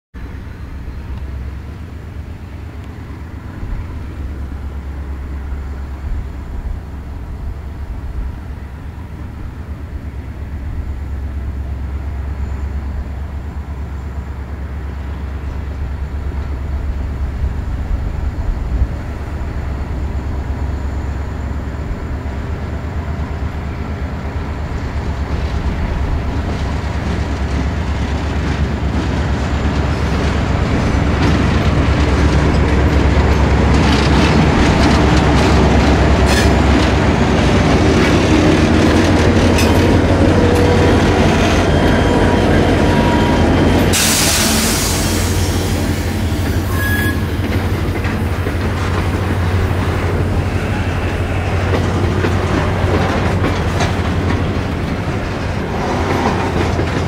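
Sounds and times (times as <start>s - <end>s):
diesel locomotive engine rumble: 0.1s - 57.0s
wheels clattering on rails: 24.1s - 57.0s.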